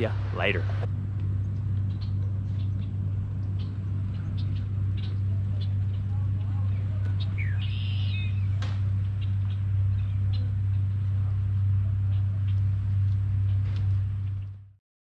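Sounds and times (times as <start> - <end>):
low machine hum: 0.0 - 14.8
bird chirping: 1.9 - 6.1, 6.7 - 8.6.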